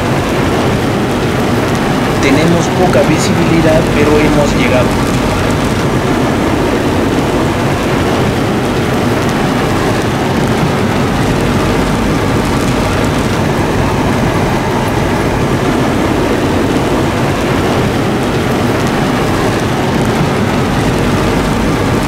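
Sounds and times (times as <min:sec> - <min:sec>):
car engine and tyre noise: 0:00.0 - 0:22.0
heavy rain on car roof: 0:00.0 - 0:22.0.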